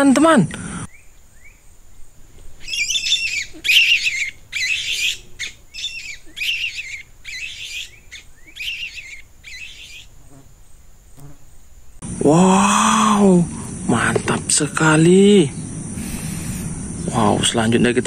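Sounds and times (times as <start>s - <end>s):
shrill squawking calls: 2.5s - 10.1s.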